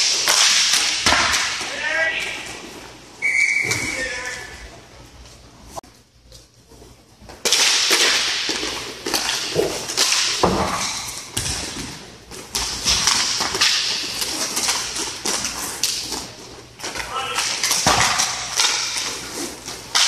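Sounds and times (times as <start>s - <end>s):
sharp clacks of sticks and puck: 0.0s - 2.7s, 7.4s - 20.0s
skate wheels rolling and scraping: 7.3s - 20.0s.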